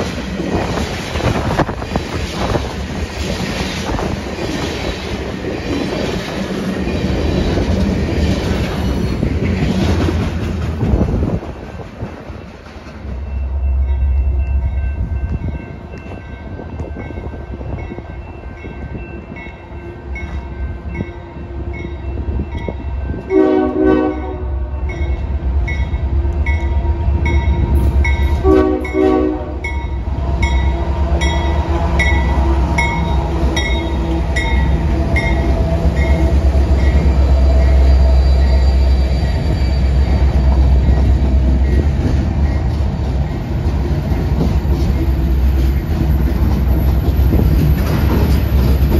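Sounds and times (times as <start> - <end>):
train rumble: 0.0 - 48.9
diesel locomotive horn blasts: 23.2 - 25.0, 27.8 - 39.5.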